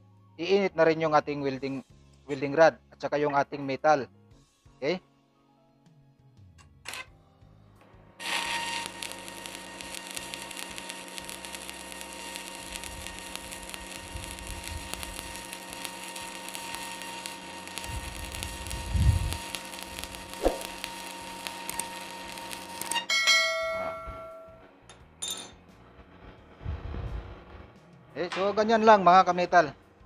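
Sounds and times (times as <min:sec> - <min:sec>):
arc welding crackle: 0:08.2 - 0:23.1, 0:25.8 - 0:29.0.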